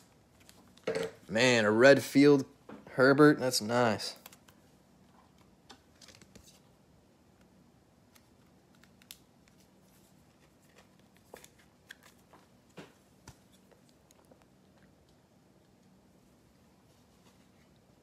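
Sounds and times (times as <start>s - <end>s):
faint steady hum: 0.0s - 18.0s
trading cards rustling: 8.1s - 14.3s.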